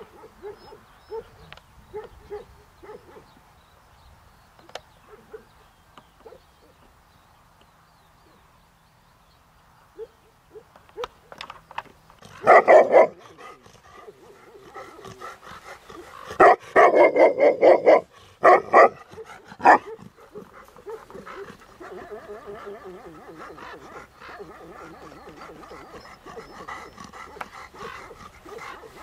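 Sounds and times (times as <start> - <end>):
dogs barking: 0.0 - 3.3, 5.0 - 5.6, 12.2 - 29.0.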